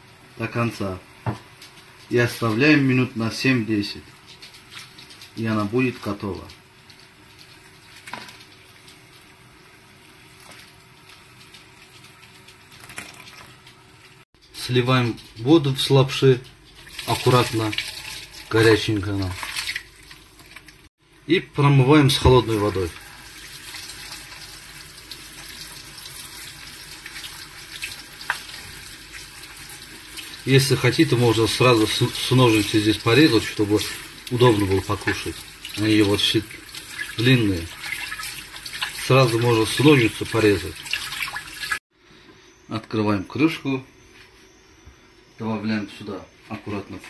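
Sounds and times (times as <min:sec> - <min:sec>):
water trickling into bowl: 0:16.8 - 0:20.8, 0:22.7 - 0:41.8.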